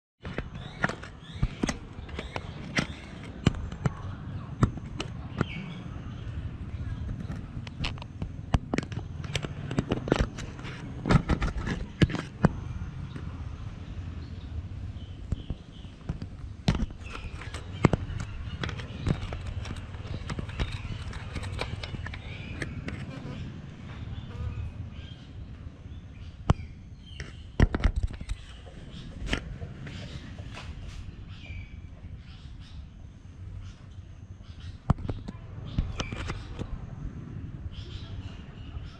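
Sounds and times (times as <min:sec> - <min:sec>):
bird bill knocking and clicking: 0:00.2 - 0:05.6, 0:07.0 - 0:13.3, 0:15.2 - 0:23.1, 0:26.4 - 0:30.7, 0:34.8 - 0:36.8
bird bill tapping on camera: 0:15.2 - 0:23.1.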